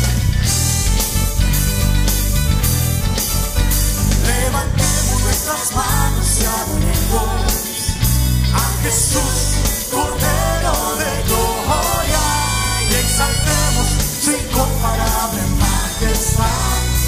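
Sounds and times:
band with bass keyboard saxophone: 0.0s - 17.0s
people singing worship song: 4.1s - 17.0s.

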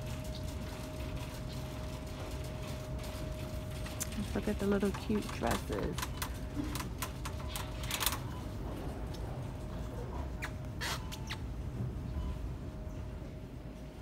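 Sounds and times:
steady low hum: 0.0s - 14.0s
short squeak: 10.4s - 11.5s.

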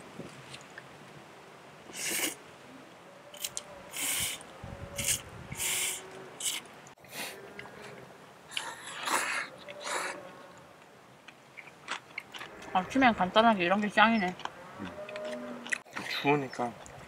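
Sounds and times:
cow mooing faintly: 14.6s - 15.8s.

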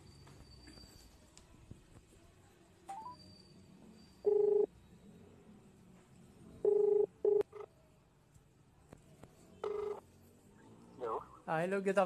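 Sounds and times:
phone ringback beeps: 4.2s - 4.7s.

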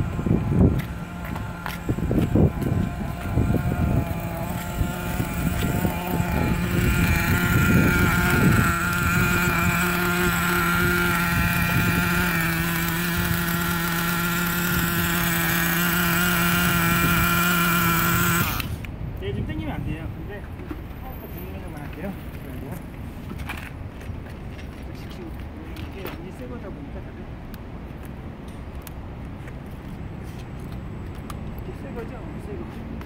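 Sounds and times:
small nitro engine idling: 0.0s - 18.9s.

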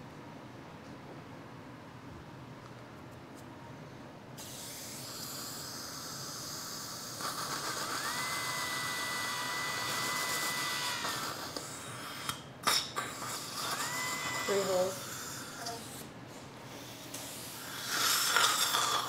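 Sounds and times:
suction hiss: 4.4s - 9.3s, 16.7s - 19.0s
dental drill whining: 4.4s - 16.1s, 17.2s - 19.0s.

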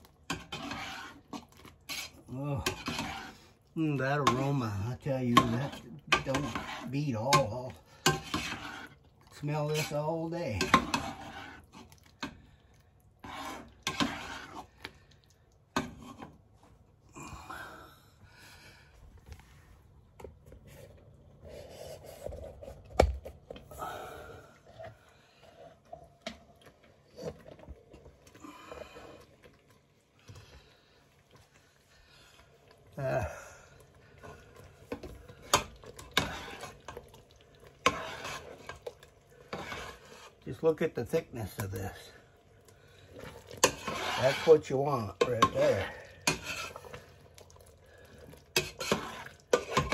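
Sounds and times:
spoon scraping a pot: 0.2s - 12.4s, 13.2s - 14.9s, 15.7s - 16.5s, 34.2s - 40.8s, 43.1s - 47.2s, 48.3s - 49.9s.

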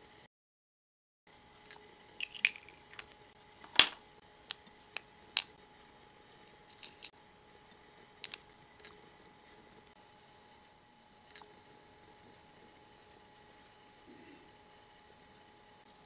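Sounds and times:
small pieces clicking and tapping: 2.2s - 3.2s, 6.7s - 7.1s, 8.2s - 8.4s.

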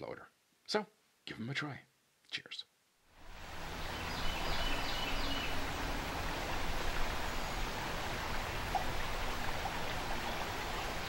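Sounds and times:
river water rushing: 3.2s - 11.0s.

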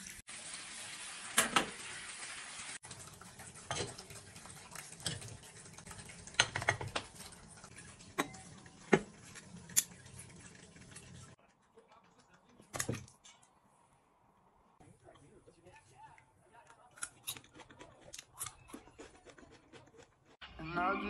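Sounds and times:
water running from bathtub tap: 0.0s - 11.4s.

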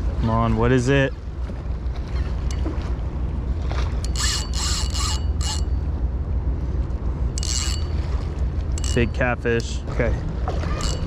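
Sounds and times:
fishing reel whirring: 4.0s - 5.8s, 7.3s - 8.1s, 8.8s - 9.2s, 10.6s - 11.0s.

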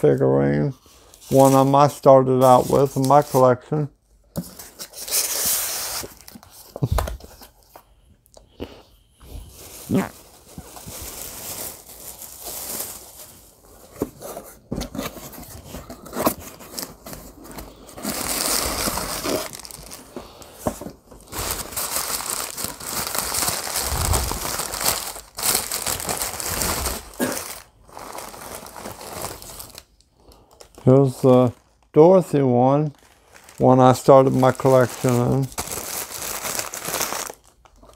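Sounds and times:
paper crinkling and rustling: 9.4s - 29.9s, 32.8s - 37.9s.

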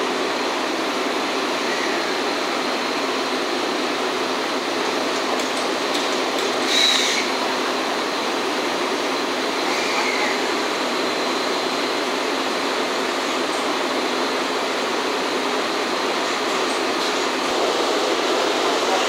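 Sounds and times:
steam locomotive hissing: 0.0s - 19.0s.

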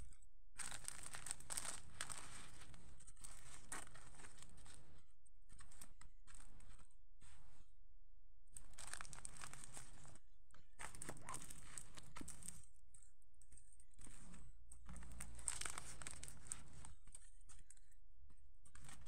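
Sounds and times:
plastic sheet crinkling: 0.6s - 4.8s, 8.6s - 10.2s, 10.8s - 12.7s, 14.8s - 17.2s.

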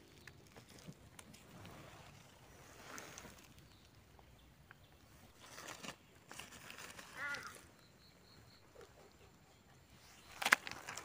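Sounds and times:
dry leaf litter crackling: 0.0s - 7.8s, 10.0s - 11.0s
faint high bird chirps: 6.8s - 11.0s.

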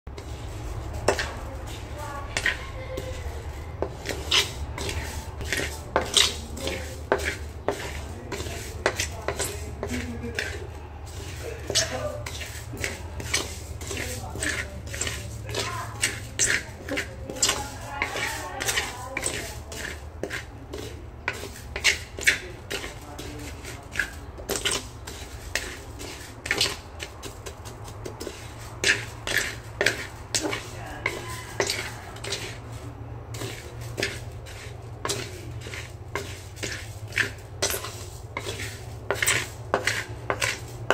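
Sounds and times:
spatula scraping rice in pan: 0.1s - 40.9s
rice grains rattling: 3.5s - 40.9s.

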